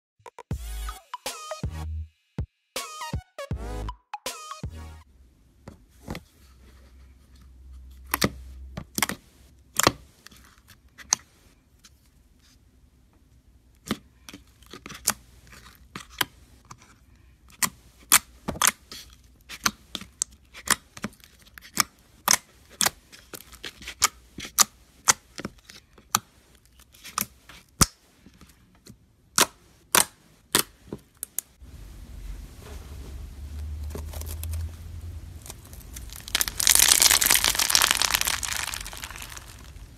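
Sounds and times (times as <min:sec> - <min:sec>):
foam slime crackling: 0:35.3 - 0:39.9
slime popping and clicking: 0:35.9 - 0:39.9.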